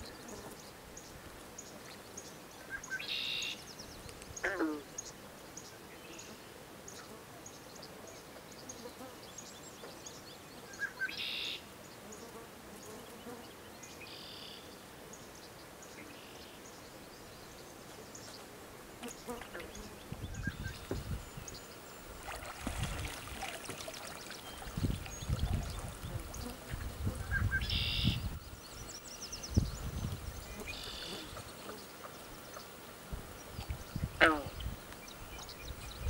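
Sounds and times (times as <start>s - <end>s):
water sloshing and splashing: 22.1s - 26.3s
water pouring off moose head: 22.1s - 26.9s.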